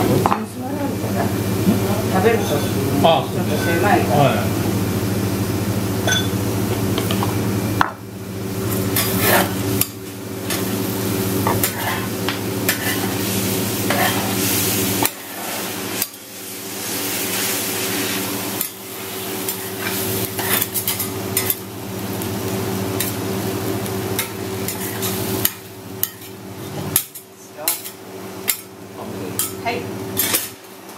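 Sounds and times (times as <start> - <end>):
noodles sizzling on griddle: 0.6 - 30.9
metal spatulas scraping: 8.9 - 9.6, 11.5 - 12.1, 12.7 - 13.2, 13.8 - 14.4, 19.4 - 21.6, 30.2 - 30.6.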